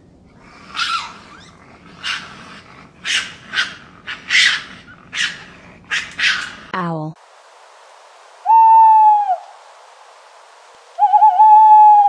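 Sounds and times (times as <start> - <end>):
faint steady hiss: 0.0 - 12.0
raccoon rasping cries: 0.4 - 6.8.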